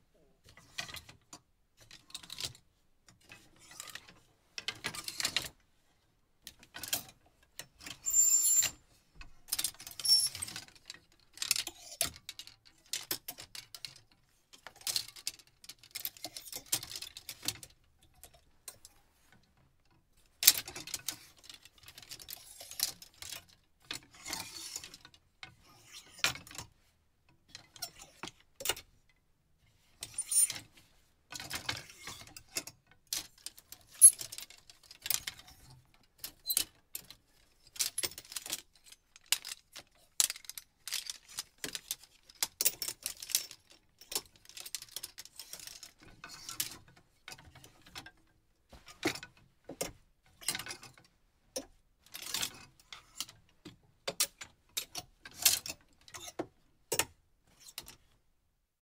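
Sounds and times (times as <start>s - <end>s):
hangers scraping on closet rod: 7.8s - 8.8s, 9.8s - 10.6s.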